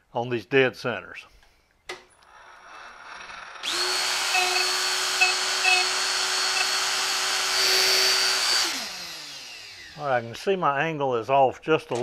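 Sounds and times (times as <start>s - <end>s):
die grinder whining: 2.2s - 10.3s.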